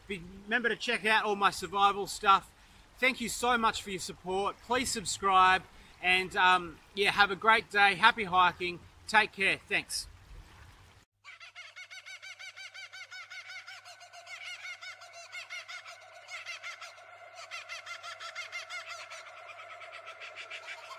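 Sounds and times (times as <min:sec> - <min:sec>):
rapid animal chirping: 0:11.5 - 0:20.9.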